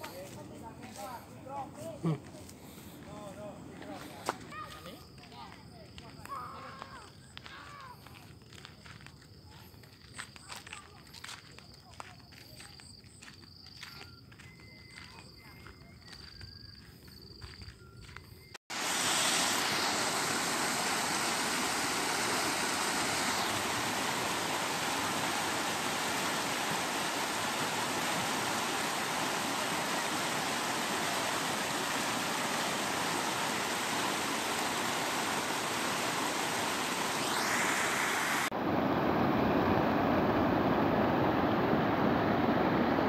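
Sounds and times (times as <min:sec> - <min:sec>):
water rushing through breach: 0:18.7 - 0:43.0.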